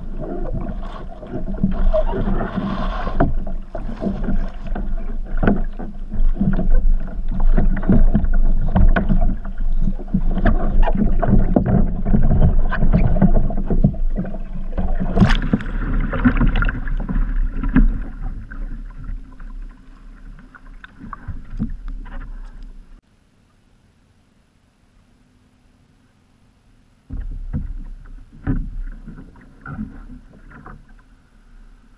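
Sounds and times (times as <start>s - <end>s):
muffled underwater rushing: 0.0s - 23.0s
water sloshing: 0.0s - 23.0s
sharp water splash: 15.0s - 18.0s.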